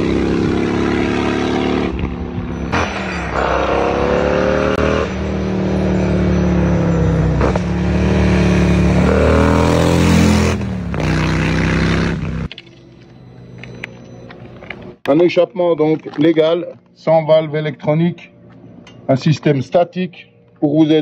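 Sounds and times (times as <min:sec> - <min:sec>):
motorcycle engine accelerating hard: 0:00.0 - 0:12.5.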